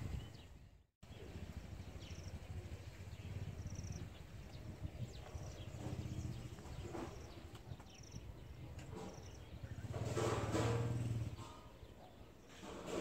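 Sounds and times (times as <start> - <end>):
wind rumbling on microphone: 0.0 - 11.6.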